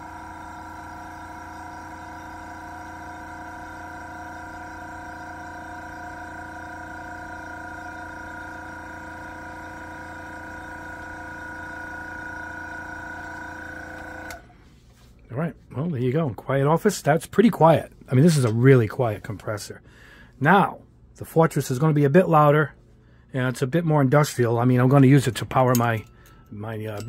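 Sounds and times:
airbrush compressor humming: 0:00.0 - 0:14.6.

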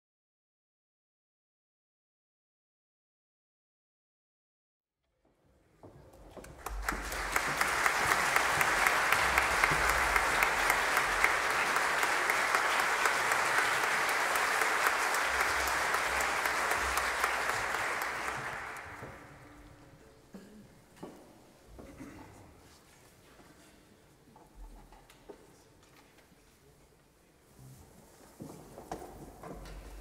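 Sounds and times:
audience applauding: 0:06.4 - 0:19.5.

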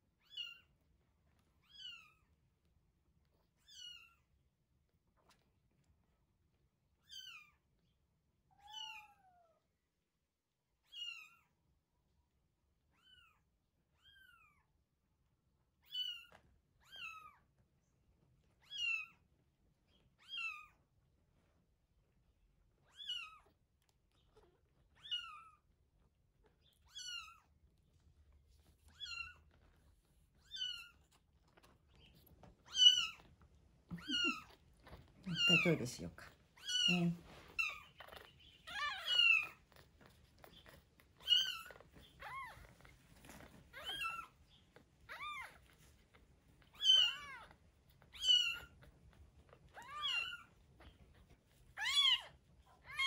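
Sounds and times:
kitten mewing: 0:33.9 - 0:35.8.

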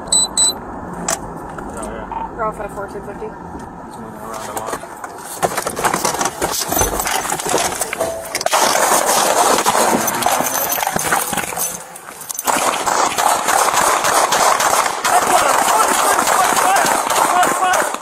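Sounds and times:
camera rubbing and jostling: 0:04.3 - 0:13.2
gunfire cracks: 0:12.4 - 0:18.0.

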